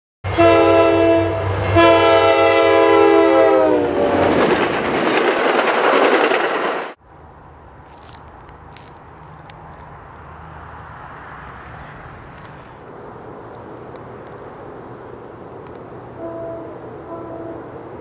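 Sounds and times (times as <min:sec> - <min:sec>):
locomotive horn blasts: 0:00.3 - 0:04.2, 0:16.2 - 0:17.8
train passing clattering: 0:00.3 - 0:18.0.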